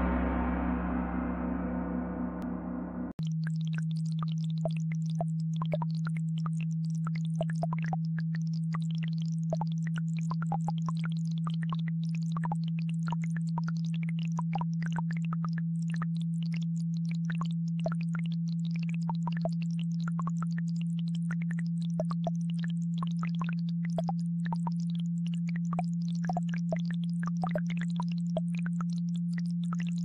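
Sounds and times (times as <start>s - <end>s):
gong ringing: 0.0s - 3.1s
low electronic sine tone: 0.0s - 8.1s, 16.9s - 30.0s.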